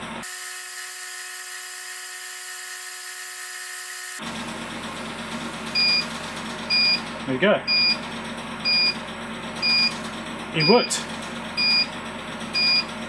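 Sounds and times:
electrical hum: 0:04.3 - 0:13.0
short high beep: 0:10.6 - 0:11.0.

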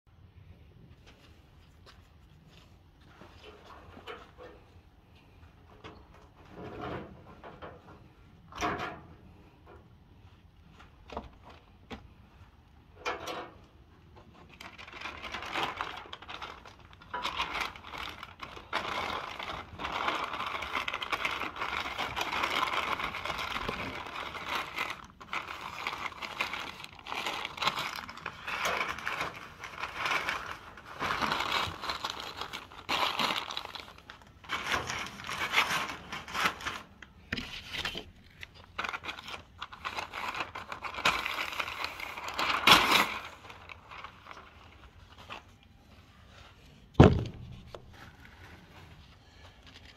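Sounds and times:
paper crinkling and rustling: 0:14.0 - 0:49.9.

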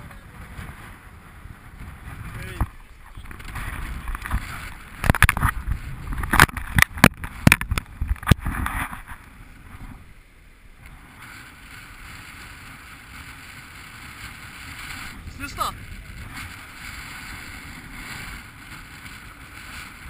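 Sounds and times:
wind: 0:00.0 - 0:20.0
rushing water: 0:01.6 - 0:20.0
camera rubbing against clothing: 0:01.8 - 0:10.0.

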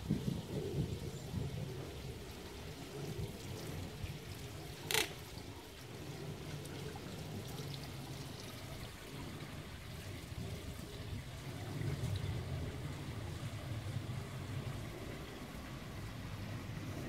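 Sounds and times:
fountain water trickling and splashing: 0:00.0 - 0:17.0
sharp click: 0:04.9 - 0:05.2.

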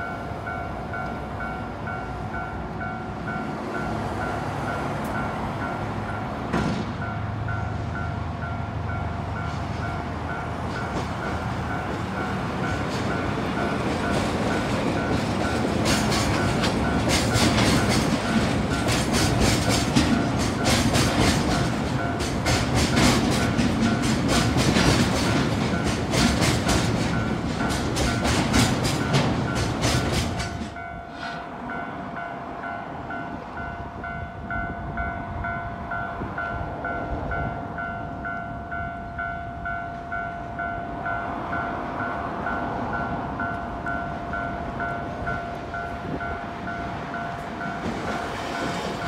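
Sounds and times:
crossing warning bell ringing: 0:00.0 - 0:49.0
train wheels clacking: 0:09.4 - 0:31.9, 0:42.5 - 0:49.0.

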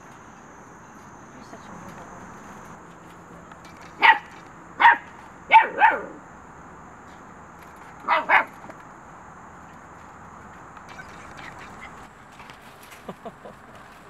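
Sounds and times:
puppy barking: 0:04.0 - 0:06.2, 0:08.0 - 0:08.5.

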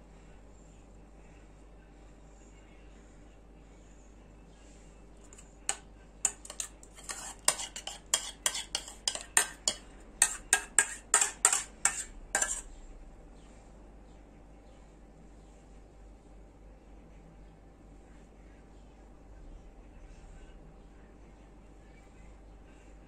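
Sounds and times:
metal spoon scraping saucepan: 0:05.2 - 0:12.7.

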